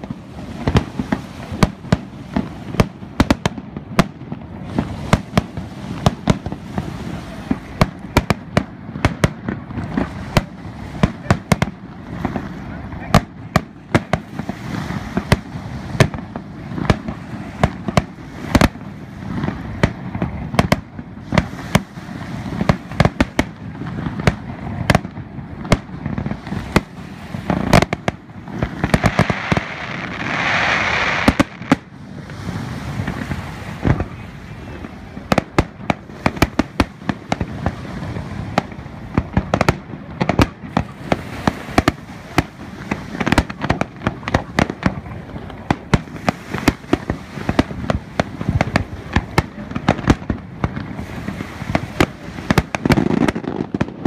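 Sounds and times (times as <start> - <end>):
fireworks hissing crackle: 0.0 - 54.0.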